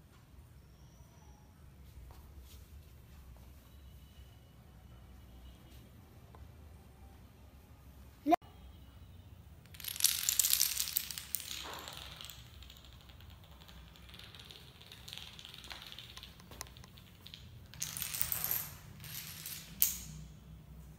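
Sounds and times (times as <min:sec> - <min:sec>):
dominoes toppling on tiled floor: 0:09.6 - 0:20.3.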